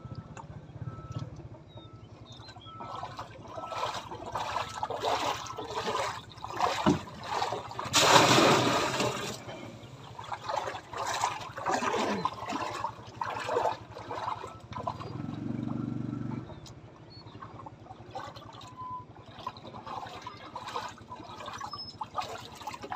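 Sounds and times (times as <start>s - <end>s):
water splashing and sloshing: 0.0s - 22.9s
rush of water: 2.8s - 15.6s.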